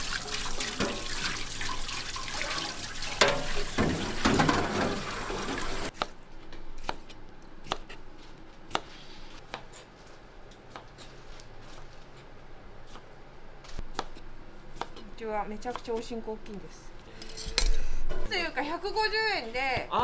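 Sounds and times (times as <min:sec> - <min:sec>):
water running from a tap: 0:00.0 - 0:05.9.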